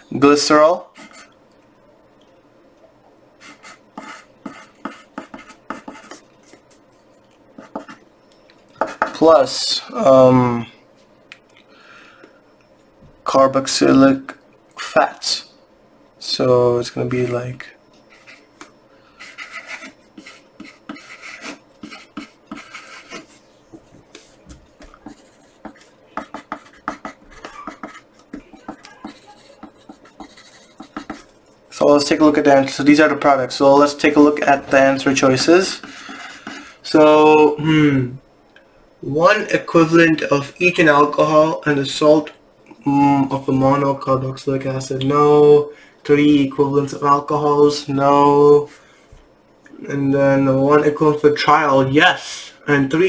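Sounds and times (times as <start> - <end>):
pencil scratching on paper: 1.0 - 1.3, 3.4 - 6.6, 19.2 - 23.4, 25.0 - 31.3.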